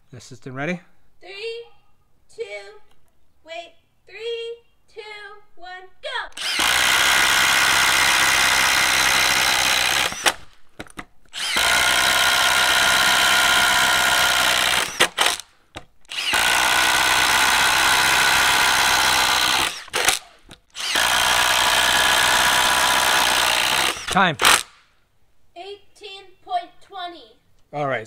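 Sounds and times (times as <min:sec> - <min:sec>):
impact driver boring into wood: 0:06.4 - 0:10.5, 0:11.3 - 0:15.5, 0:16.1 - 0:24.8.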